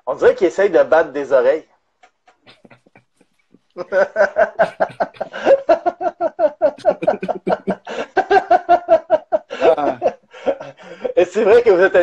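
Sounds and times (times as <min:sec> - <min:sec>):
man laughing hard: 0:03.8 - 0:11.2.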